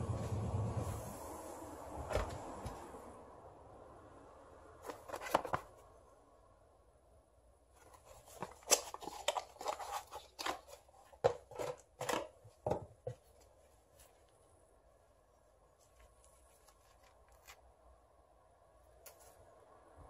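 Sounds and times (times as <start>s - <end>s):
cardboard box rustling and clicking: 4.8s - 5.8s, 7.8s - 13.5s.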